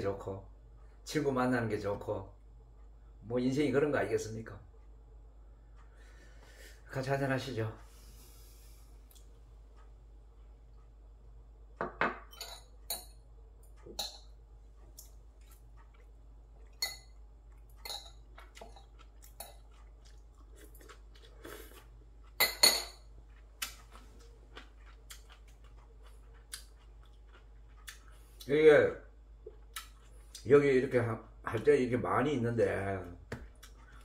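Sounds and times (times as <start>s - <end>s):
chopsticks clinking on dishes: 17.8s - 19.9s.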